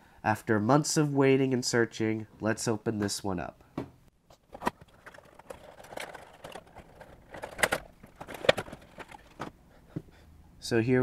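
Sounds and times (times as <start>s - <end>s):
cardboard box rustling: 4.4s - 9.5s.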